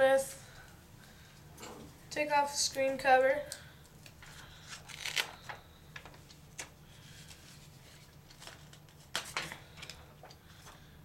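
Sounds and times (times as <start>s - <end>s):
plastic film crinkling and peeling: 4.0s - 10.4s.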